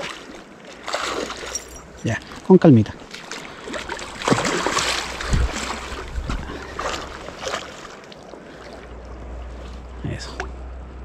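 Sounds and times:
river water rushing: 0.0s - 10.9s
wind on microphone: 5.1s - 6.8s.

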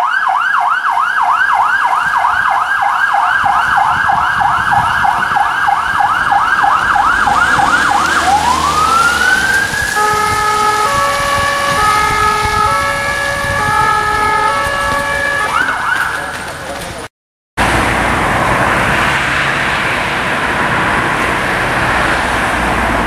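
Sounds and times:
two-tone hi-lo siren: 0.0s - 16.4s
police siren yelp and wail: 0.0s - 16.7s.

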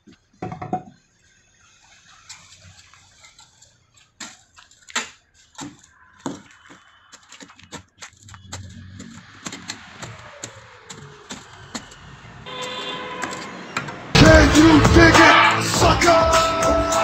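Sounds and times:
mattock scraping soil: 1.9s - 13.7s.

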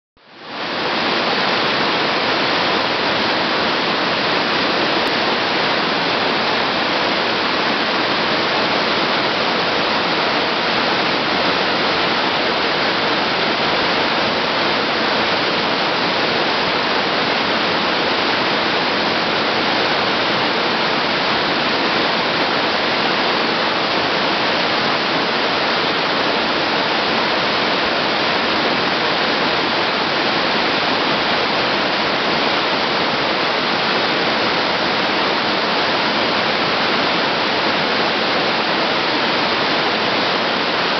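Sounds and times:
waterfall rushing: 0.3s - 40.9s.

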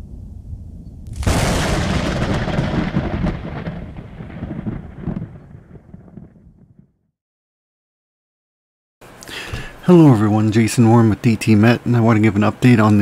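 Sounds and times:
thunder rumbling and cracking: 0.0s - 7.1s.

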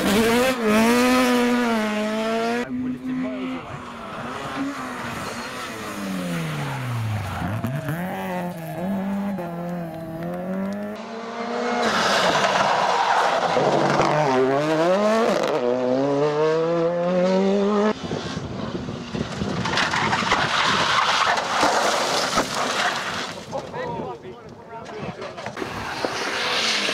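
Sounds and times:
rally car engines revving: 0.0s - 23.1s, 25.4s - 26.9s
tyres sliding and scrabbling: 19.2s - 24.0s.

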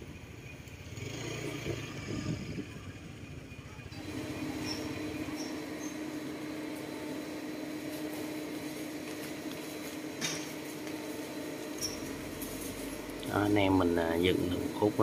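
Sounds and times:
steady machine hum: 3.5s - 15.0s.

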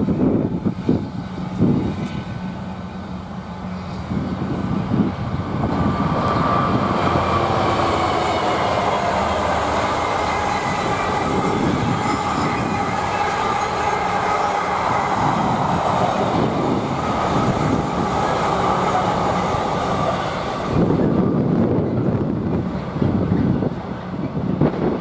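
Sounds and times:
train wheels on rails: 0.0s - 25.0s
wind gusts on microphone: 0.0s - 25.0s
thin squealing tones: 7.8s - 19.6s.

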